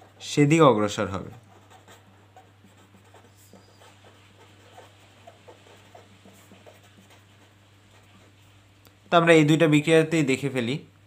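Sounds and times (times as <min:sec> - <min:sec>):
pen scratching on paper: 0:00.0 - 0:08.8
steady low hum: 0:00.0 - 0:11.0.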